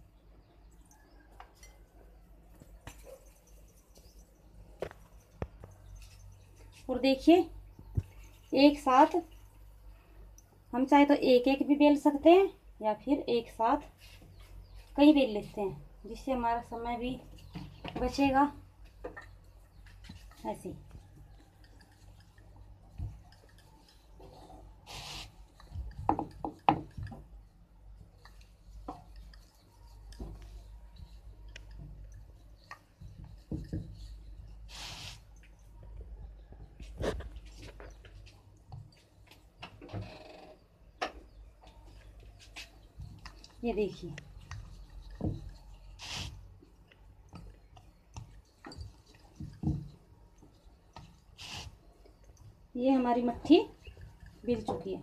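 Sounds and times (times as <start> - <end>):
rolling pin squishing dough: 19.8 - 34.8
brief rustling hiss: 24.9 - 25.4, 34.7 - 35.3, 46.0 - 46.4
brief hiss: 34.7 - 35.2.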